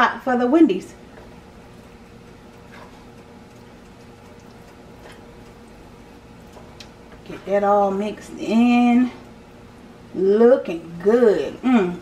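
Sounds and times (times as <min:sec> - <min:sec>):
low steady hum: 0:00.0 - 0:12.0
spatula stirring thick chili: 0:01.0 - 0:07.3.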